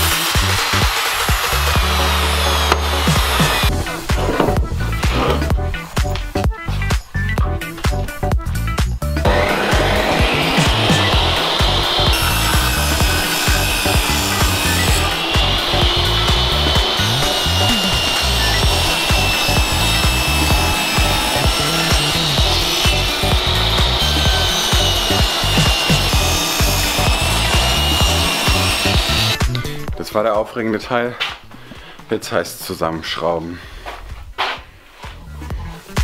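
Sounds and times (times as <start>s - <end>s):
table saw cutting wood: 0.0s - 5.5s, 9.2s - 29.5s.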